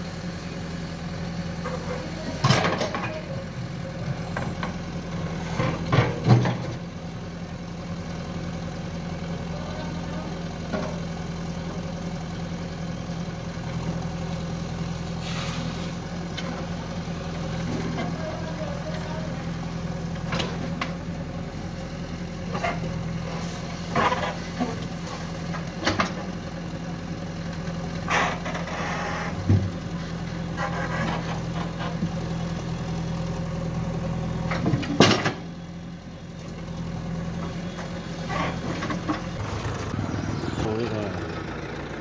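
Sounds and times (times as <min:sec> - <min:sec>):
diesel engine running: 0:00.0 - 0:42.0
hydraulics working: 0:37.3 - 0:42.0.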